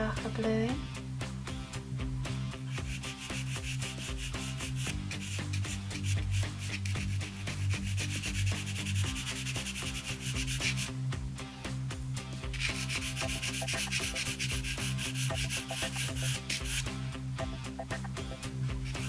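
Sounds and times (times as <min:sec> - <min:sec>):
background music with low notes: 0:00.0 - 0:19.0
pencil scratching on paper: 0:02.7 - 0:10.9, 0:12.6 - 0:16.8.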